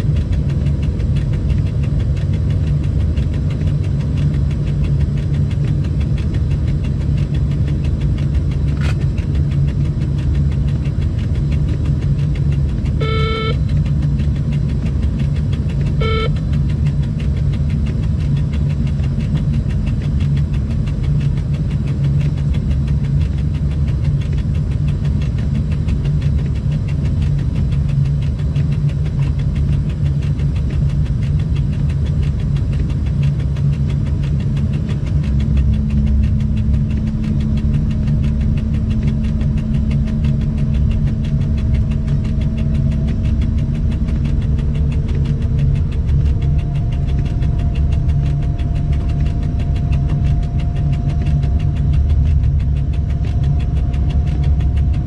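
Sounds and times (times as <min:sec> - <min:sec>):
hum: 0:00.0 - 0:55.0
locomotive cab low rumble: 0:00.0 - 0:55.0
faint rising whine: 0:34.3 - 0:55.0.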